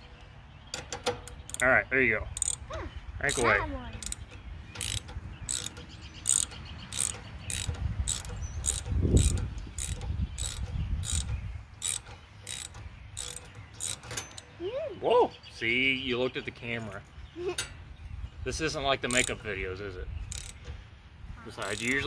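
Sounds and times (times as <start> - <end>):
ratchet wrench clicking: 0.8 - 1.6, 2.4 - 2.6, 3.3 - 14.5, 19.1 - 19.4, 20.3 - 20.6, 21.6 - 22.0.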